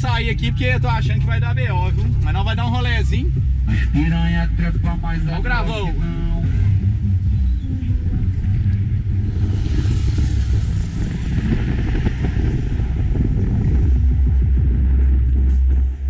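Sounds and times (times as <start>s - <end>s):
road and engine rumble: 0.0s - 16.0s
wind on microphone: 5.8s - 16.0s
traffic passing close by: 7.3s - 14.6s.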